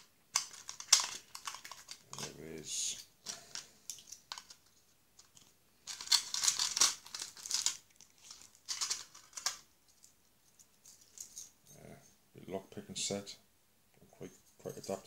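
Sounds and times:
paper crinkling and rustling: 0.4 - 2.3, 3.3 - 10.2.

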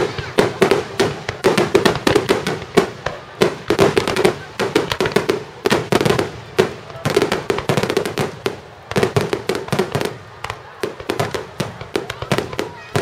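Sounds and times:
fireworks bangs: 0.0 - 13.0
fireworks crackling: 0.0 - 13.0.

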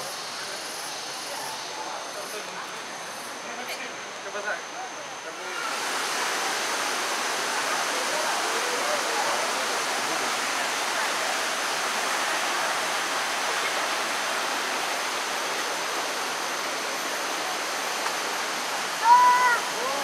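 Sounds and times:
stream rushing over rocks: 5.2 - 20.0.

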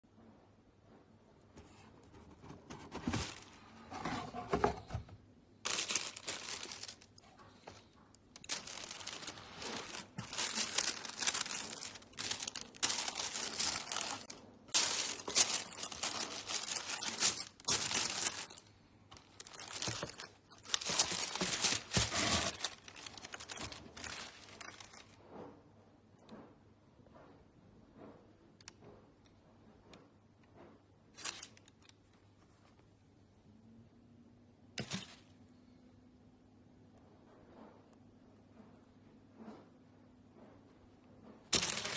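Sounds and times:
tissue paper rustling: 2.7 - 4.8, 5.6 - 7.8, 8.4 - 25.2, 41.5 - 41.9.

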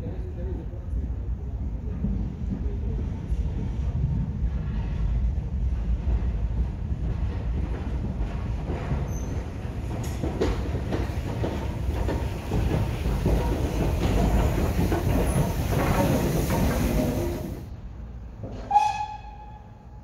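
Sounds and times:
steam locomotive rumbling past: 1.1 - 20.0
wheels clattering over rail joints: 7.6 - 17.6.

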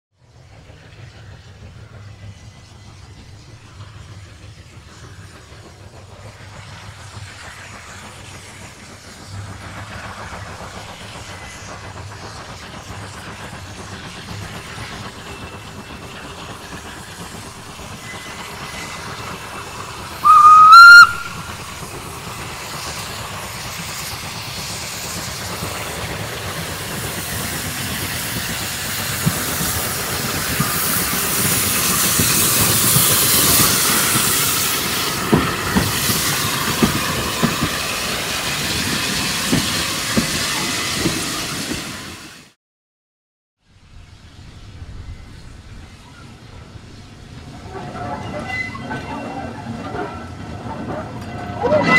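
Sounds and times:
steam locomotive approaching: 0.1 - 42.6, 43.6 - 51.9
steam hissing: 0.2 - 42.6
steam whistle: 20.2 - 21.8.

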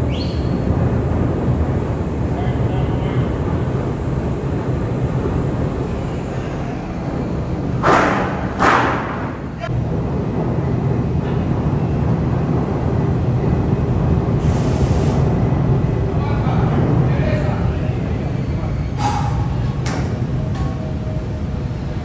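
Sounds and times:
low machinery hum: 0.0 - 22.0
short hissing bursts: 14.4 - 15.3.

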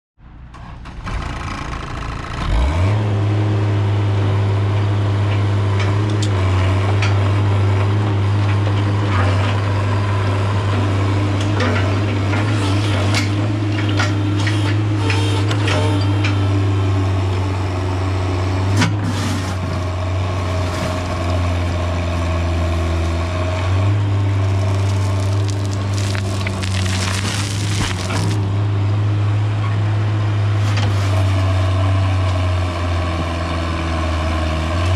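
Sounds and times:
excavator diesel engine: 0.2 - 34.9
soil and stones scraping: 23.8 - 28.5.

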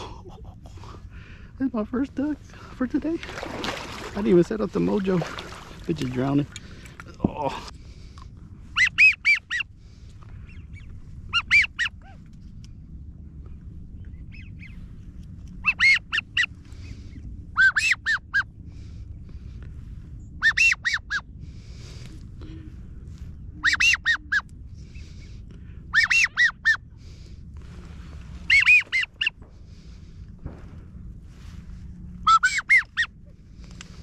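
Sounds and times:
wind rumble: 0.0 - 34.0
geese honking: 8.7 - 9.7, 11.3 - 12.1, 15.6 - 16.5, 17.6 - 18.5, 23.6 - 24.5, 25.9 - 26.9, 28.4 - 29.4, 32.2 - 33.2.

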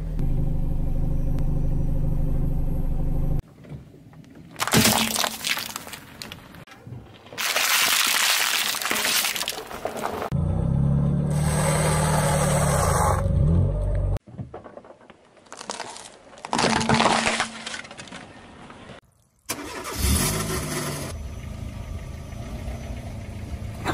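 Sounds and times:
car engine running: 0.0 - 3.4
plastic crunching under a tyre: 4.3 - 10.3, 14.2 - 19.0.

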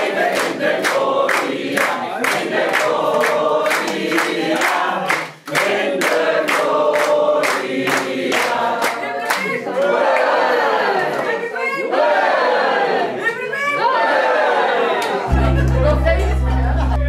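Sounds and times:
people clapping in rhythm: 0.0 - 12.4, 14.9 - 17.0
group of people singing: 0.0 - 13.2.

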